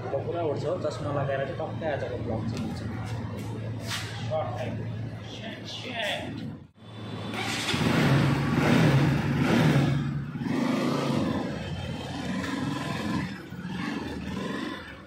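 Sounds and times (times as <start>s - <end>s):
motorcycle engine revving: 6.8s - 15.0s.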